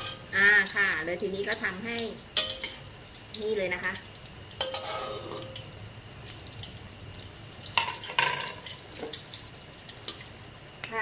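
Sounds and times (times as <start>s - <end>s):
oil crackling and popping: 0.0s - 11.0s
metal spatula clinking on wok: 2.4s - 2.8s.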